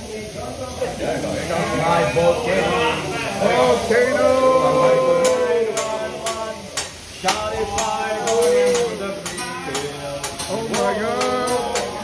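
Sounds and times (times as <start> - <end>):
food sizzling: 0.0 - 12.0
metal spatulas tapping on griddle: 5.2 - 12.0.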